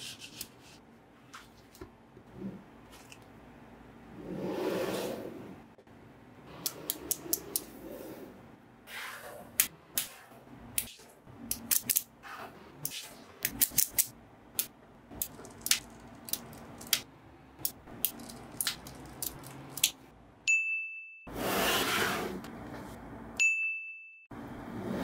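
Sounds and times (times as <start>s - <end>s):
magnetic balls clicking together: 13.4s - 17.0s
bright ding tone: 20.5s - 21.3s, 23.4s - 24.3s.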